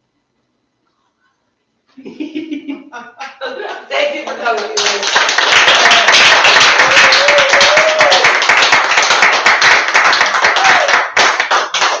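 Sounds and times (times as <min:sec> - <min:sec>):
people clapping: 0:03.7 - 0:12.0.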